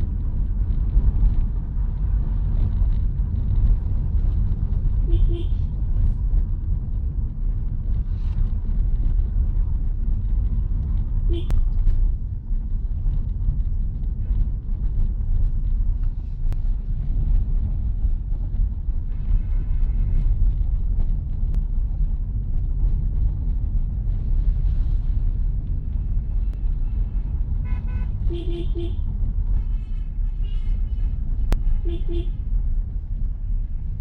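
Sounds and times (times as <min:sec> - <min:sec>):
car engine and tyres rumbling: 0:00.0 - 0:34.0
car horn toots: 0:05.0 - 0:05.6, 0:11.3 - 0:11.6, 0:26.5 - 0:32.4.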